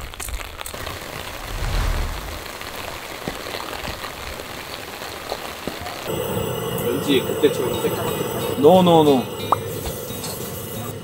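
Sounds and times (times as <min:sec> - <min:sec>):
steady rain hiss: 0:00.0 - 0:11.0
low rumble: 0:01.3 - 0:02.7.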